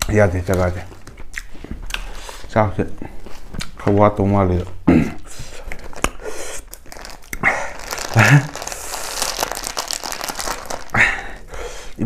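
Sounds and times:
plastic bag crinkling: 5.7s - 11.5s.

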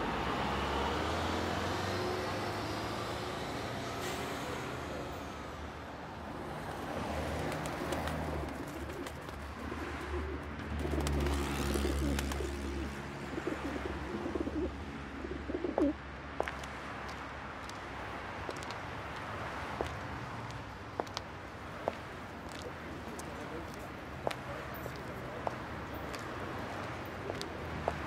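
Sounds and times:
pigeons cooing: 8.2s - 16.0s.

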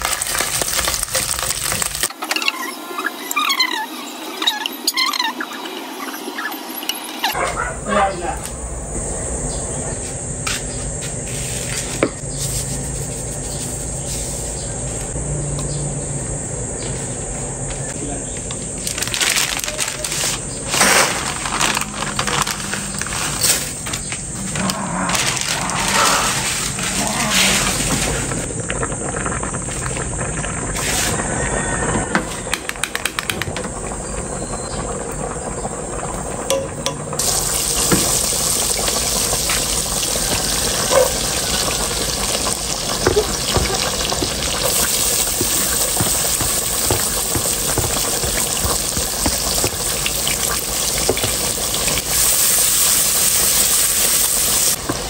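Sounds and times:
onions ticking and popping in fat: 0.0s - 2.1s, 36.4s - 54.1s
frying pan sizzling: 0.0s - 2.2s, 18.6s - 55.0s
water bubbling in a pot: 27.3s - 32.1s, 32.7s - 55.0s.

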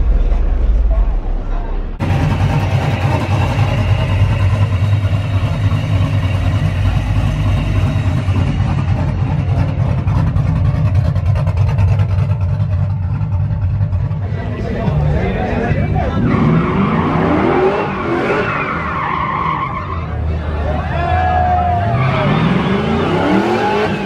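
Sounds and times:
turbocharged engine running: 2.0s - 18.4s.

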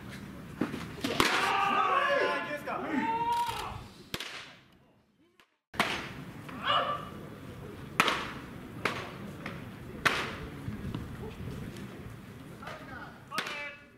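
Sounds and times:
baseball smacking into mitt: 8.0s - 9.1s.

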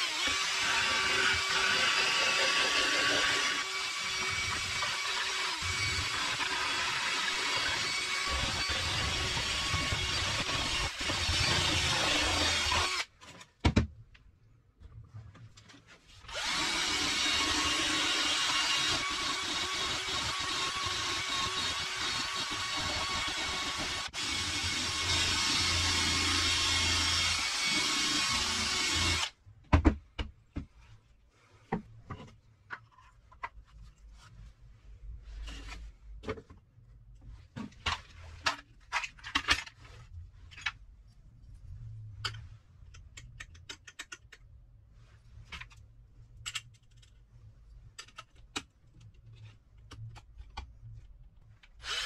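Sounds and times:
cordless drill running: 0.0s - 13.1s, 16.3s - 29.3s, 51.8s - 52.0s.

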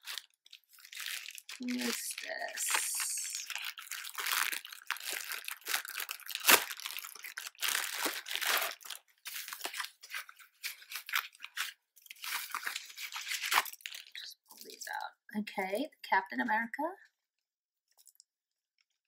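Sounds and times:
loud packaging crunch: 0.0s - 14.2s
plastic packaging crinkling: 0.0s - 15.0s.

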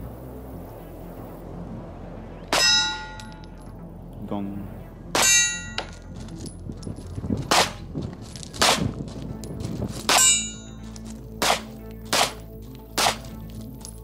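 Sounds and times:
steel target ringing: 2.5s - 3.6s, 5.1s - 6.2s, 10.1s - 10.8s
pistol shots: 7.5s - 7.8s, 8.6s - 8.9s, 11.4s - 13.4s.

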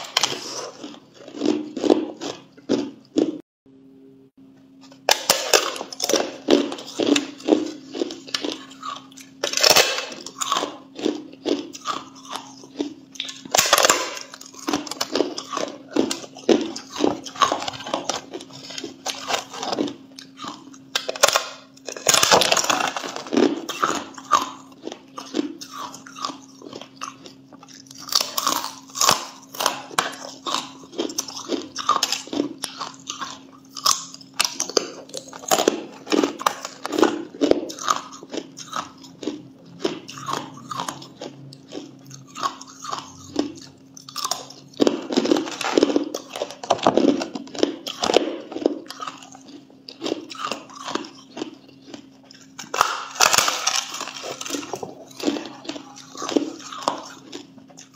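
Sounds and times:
ice being crunched by chewing: 5.1s - 57.9s.

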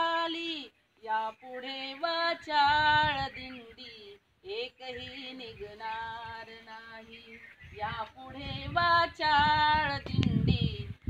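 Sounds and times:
woman singing slow melody: 0.0s - 11.0s.

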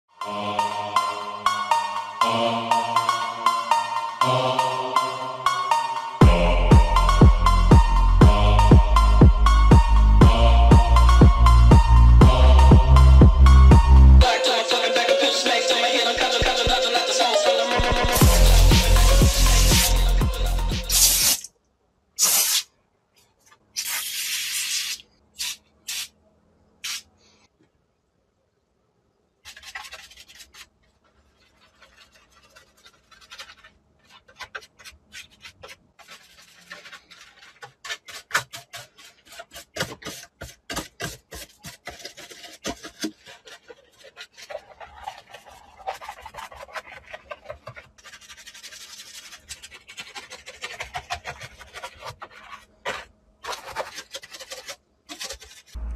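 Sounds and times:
brush scrubbing plastic: 17.7s - 21.5s, 29.4s - 55.9s
foam sprayer hissing: 20.9s - 21.5s.

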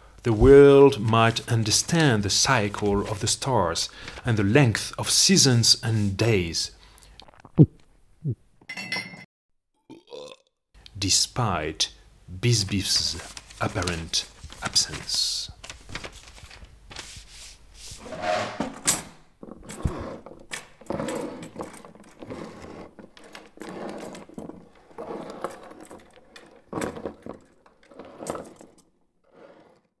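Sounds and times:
small objects scraping on wooden desk: 17.4s - 18.8s, 19.4s - 30.0s.

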